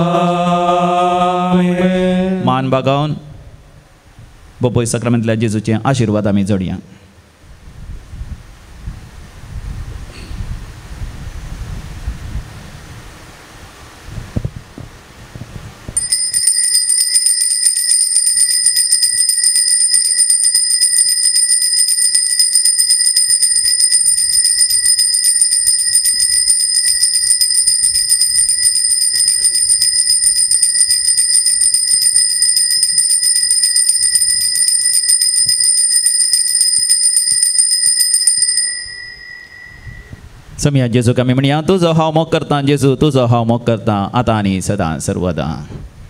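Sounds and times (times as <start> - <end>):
altar bell rung rapidly: 16.0 - 40.1.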